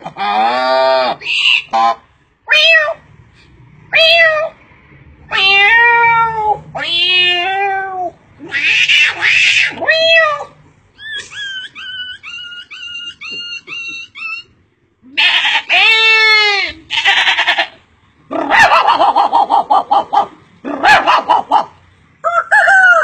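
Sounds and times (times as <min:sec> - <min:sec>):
man imitating cat meows: 0:05.3 - 0:10.5.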